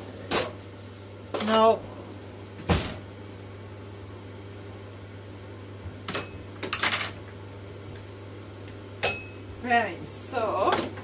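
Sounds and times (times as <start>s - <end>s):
steady low hum: 0.0s - 11.0s.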